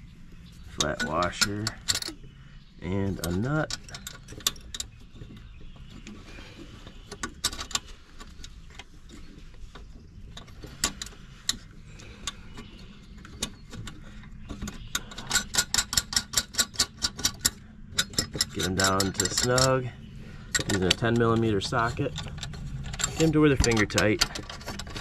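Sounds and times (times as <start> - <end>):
metal nuts and washers clicking: 0.7 - 2.2, 13.3 - 25.0
handling noise: 2.9 - 25.0.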